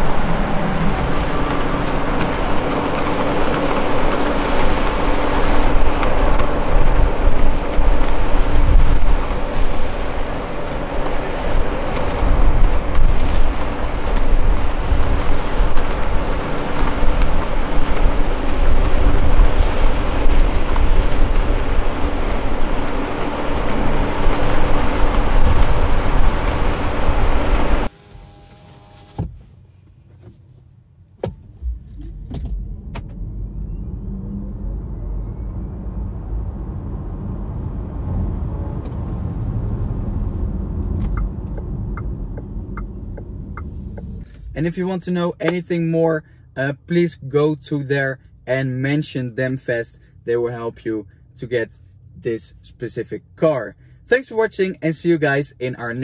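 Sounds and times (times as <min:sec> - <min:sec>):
loud rushing noise: 0:00.0 - 0:28.2, 0:31.4 - 0:44.9
electric motor whine rising: 0:00.0 - 0:29.2
road and tyre rumble: 0:00.0 - 0:56.0.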